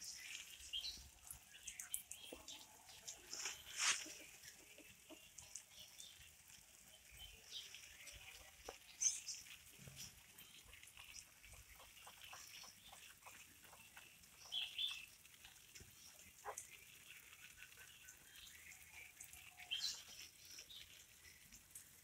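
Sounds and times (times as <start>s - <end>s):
cat walking on dry leaves: 2.9s - 4.7s.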